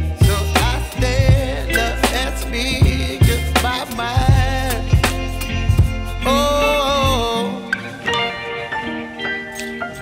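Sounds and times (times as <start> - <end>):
strong bass line: 0.0 - 7.4
gliding melody: 0.0 - 10.0.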